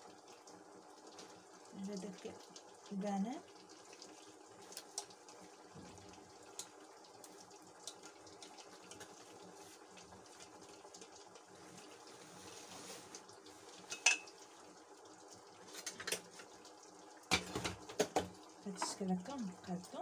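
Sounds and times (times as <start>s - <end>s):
pan clinking on glass dish: 13.9s - 14.4s.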